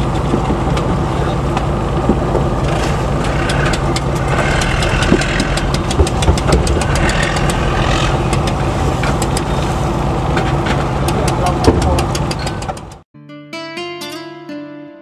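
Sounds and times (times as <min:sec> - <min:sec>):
diesel engine running: 0:00.0 - 0:13.0
sharp clicks: 0:03.2 - 0:08.6, 0:11.1 - 0:13.0.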